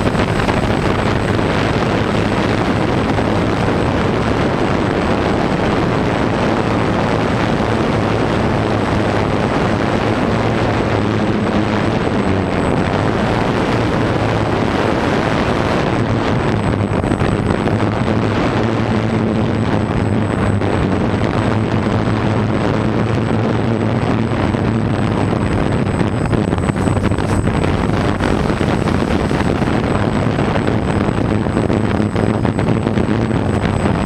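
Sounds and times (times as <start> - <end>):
drone propellers whirring: 0.0 - 34.0.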